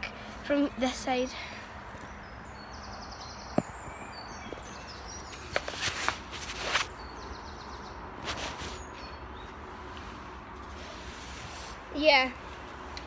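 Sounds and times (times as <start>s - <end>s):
birds singing: 0.1s - 11.2s
rustling and scraping against bark: 3.6s - 7.0s, 8.2s - 13.0s.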